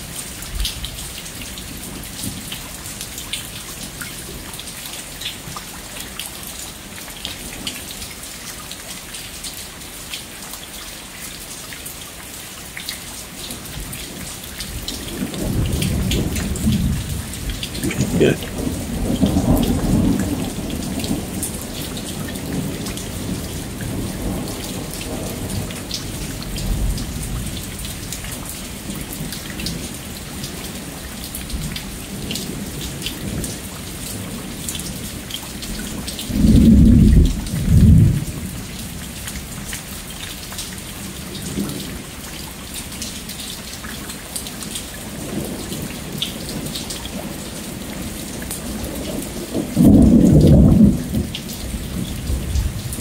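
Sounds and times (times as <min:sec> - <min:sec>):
steady rain with ticking drops: 0:00.0 - 0:53.0
rolling thunder: 0:36.3 - 0:38.4, 0:49.4 - 0:53.0.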